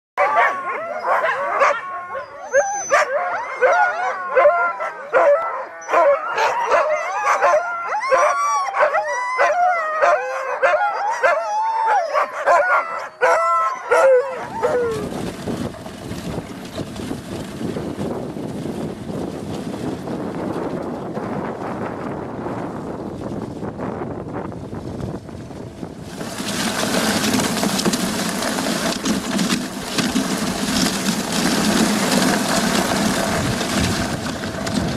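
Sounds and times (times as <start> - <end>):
sled dogs barking and howling: 0.2 - 17.0, 26.1 - 34.9
wind rushing over microphone: 14.3 - 34.9.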